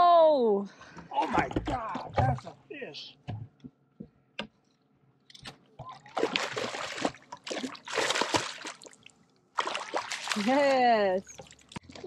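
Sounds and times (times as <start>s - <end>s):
water splashing: 5.8s - 12.0s.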